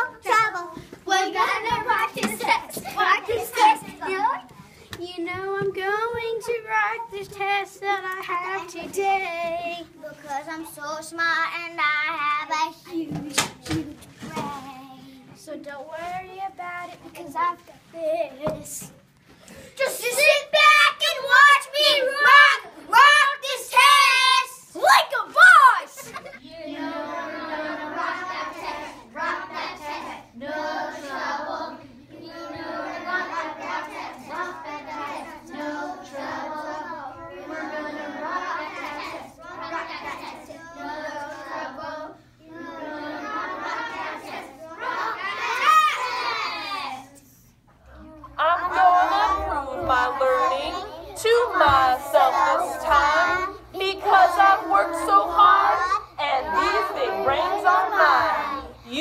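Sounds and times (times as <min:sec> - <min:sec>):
child singing a pop song: 0:00.0 - 0:18.9
children singing together: 0:26.0 - 0:47.2, 0:48.3 - 0:58.8.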